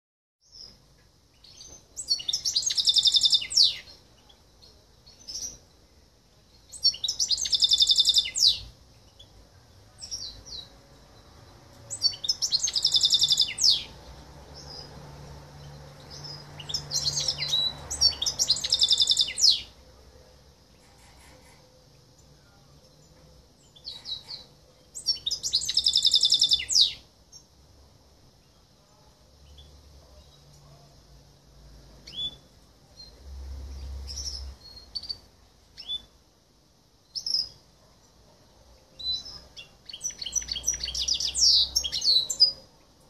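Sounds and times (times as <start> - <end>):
bird chirps: 0.4 - 5.8, 6.5 - 9.4, 10.0 - 19.8, 20.7 - 27.6, 32.0 - 36.2, 37.0 - 38.2, 38.9 - 42.8
bird singing high trills: 1.4 - 4.0, 6.7 - 9.3, 11.9 - 14.0, 16.1 - 19.7, 23.7 - 27.0.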